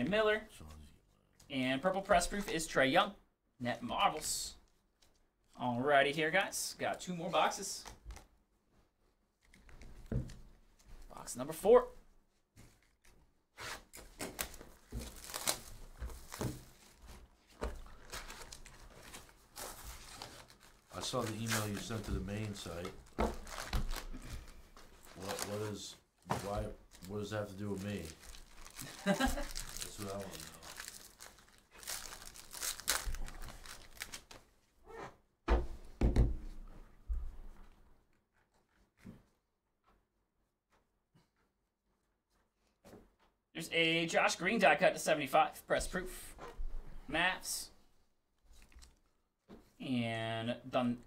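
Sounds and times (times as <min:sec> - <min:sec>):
foil wrapper crinkling and tearing: 0:14.3 - 0:16.4, 0:18.0 - 0:34.4.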